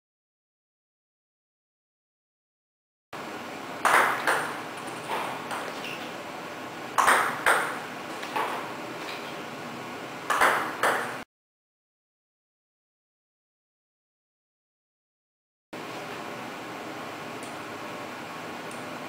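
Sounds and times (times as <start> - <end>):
ping pong ball bouncing on table: 3.8 - 4.6, 5.5 - 5.8, 7.0 - 7.8, 10.3 - 11.2
ping pong ball struck by paddle: 3.8 - 4.6, 7.0 - 7.8, 10.3 - 11.2.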